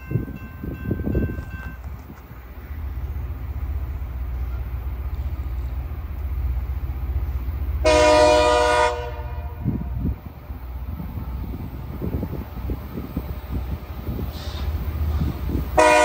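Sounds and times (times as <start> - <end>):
rail grinder diesel rumble: 0.0 - 16.0
chord horn blast: 7.8 - 9.8, 15.8 - 16.0.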